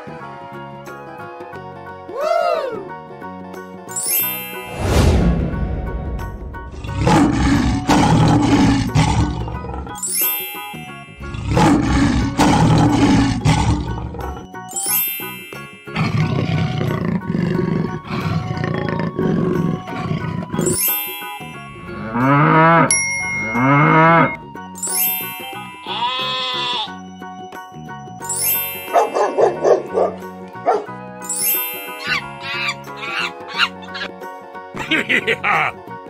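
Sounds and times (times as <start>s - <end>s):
children's background music: 0.0s - 36.0s
cartoon big cat roars: 6.7s - 10.0s, 11.2s - 14.4s, 16.0s - 20.6s
short chime: 22.9s - 25.9s.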